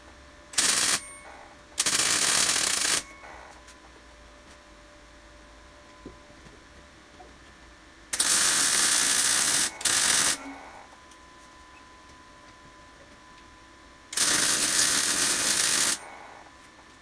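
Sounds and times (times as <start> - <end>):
welder arc crackling: 8.2 - 10.5, 14.2 - 16.1.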